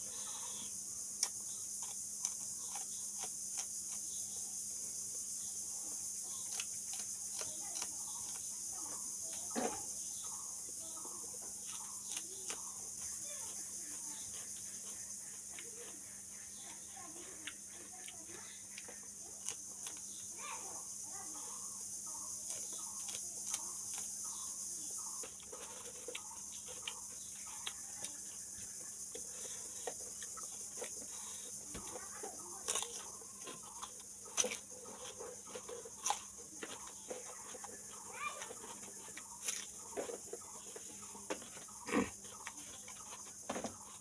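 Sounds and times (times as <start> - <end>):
crunchy chewing: 0.0 - 44.0.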